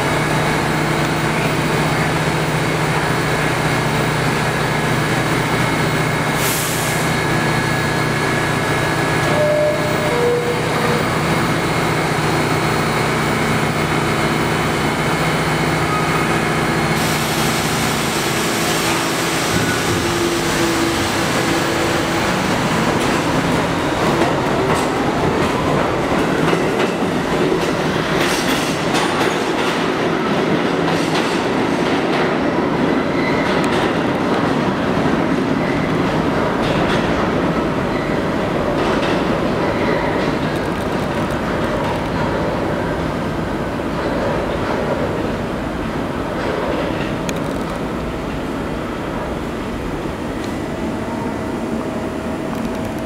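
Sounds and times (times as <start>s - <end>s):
train motors and wheels clattering: 0.0s - 53.0s
train equipment humming: 7.0s - 30.9s, 35.9s - 53.0s.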